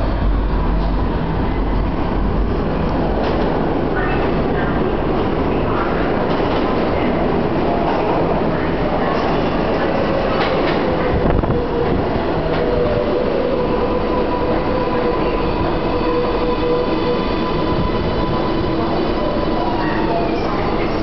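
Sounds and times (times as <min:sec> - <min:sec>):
subway train wheels rumbling: 0:00.0 - 0:21.0
train whine: 0:00.0 - 0:21.0.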